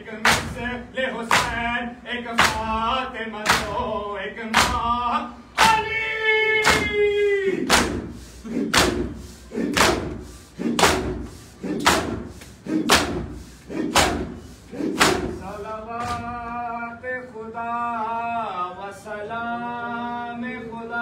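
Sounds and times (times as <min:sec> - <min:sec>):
man singing: 0:00.0 - 0:07.7, 0:15.4 - 0:21.0
palms slapping chests: 0:00.2 - 0:04.9, 0:06.6 - 0:15.4
crowd voices: 0:05.3 - 0:16.4.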